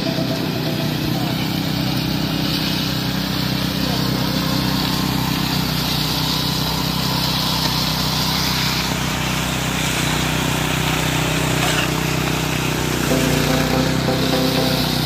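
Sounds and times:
small engine droning: 0.0s - 15.0s.

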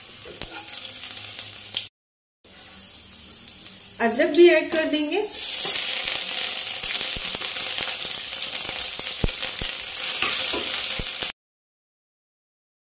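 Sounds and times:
oil sizzling: 0.0s - 1.9s, 2.5s - 11.4s
steel spoon stirring against pan: 0.2s - 0.9s, 5.4s - 9.3s, 10.0s - 11.1s.

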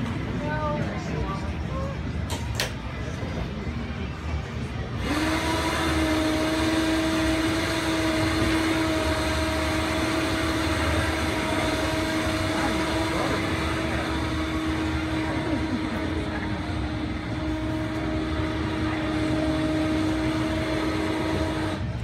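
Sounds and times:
electric winch motor whining: 4.9s - 22.0s.

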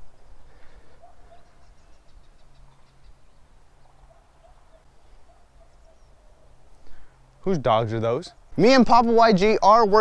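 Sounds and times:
distant bird chirps: 0.0s - 7.4s.

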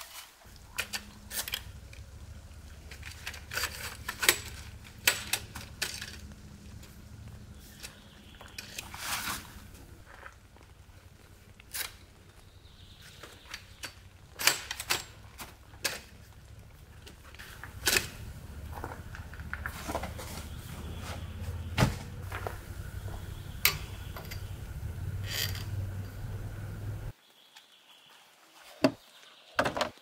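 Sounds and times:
camp chair frame clicks and knocks: 13.5s - 16.1s.

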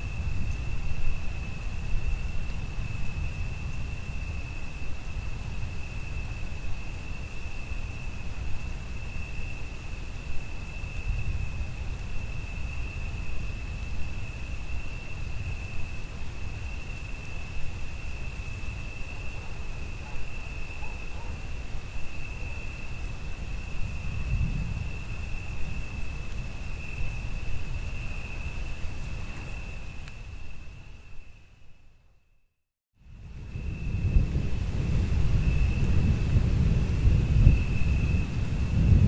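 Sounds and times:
rain: 0.0s - 31.7s, 33.0s - 39.0s
crickets trilling: 0.0s - 32.4s, 33.0s - 39.0s
distant thunder: 33.4s - 39.0s.

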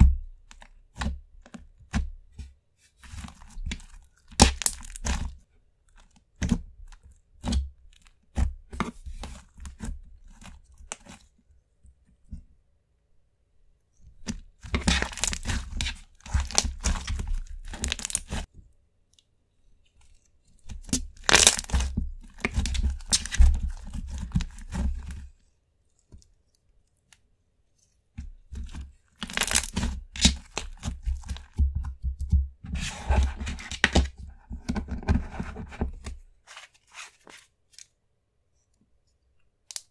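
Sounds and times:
hands squishing sticky slime: 3.3s - 5.3s, 14.3s - 18.5s, 20.6s - 25.2s, 28.5s - 32.3s.

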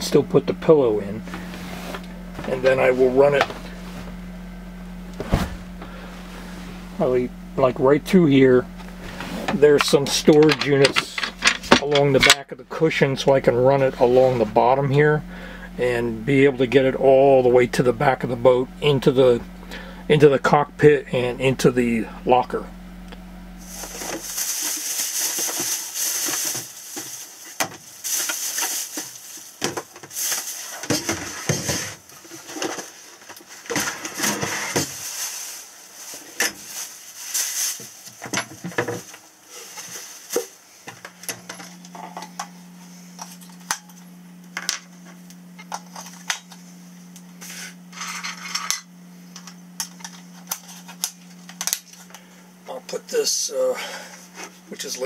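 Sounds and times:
steady low hum: 0.0s - 55.0s
plastic bag rustling: 23.6s - 40.6s.

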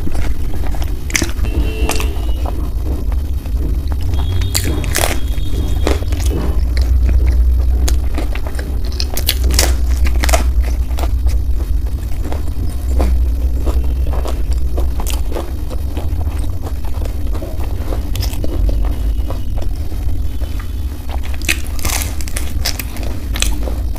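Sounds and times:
chewing and crunching food: 0.0s - 23.9s
steady low rumble: 0.0s - 23.9s.

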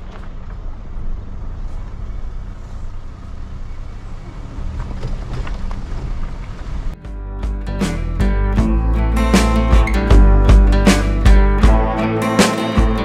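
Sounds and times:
car engine and tyre rumble: 0.0s - 7.0s.

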